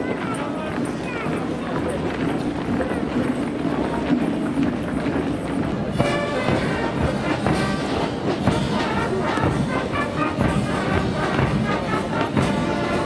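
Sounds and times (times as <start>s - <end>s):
military brass band playing: 5.9s - 13.0s.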